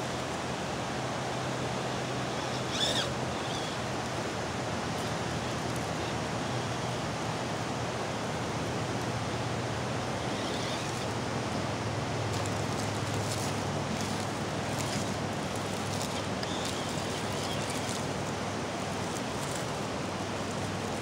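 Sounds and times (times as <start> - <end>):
water rushing over shoals: 0.1 - 21.0.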